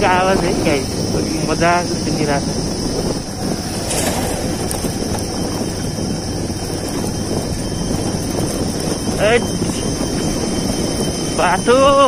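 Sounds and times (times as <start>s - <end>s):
tyres rumbling over gravel: 0.0s - 11.6s
insects buzzing: 0.0s - 12.0s
motorcycle engine running: 0.0s - 12.0s.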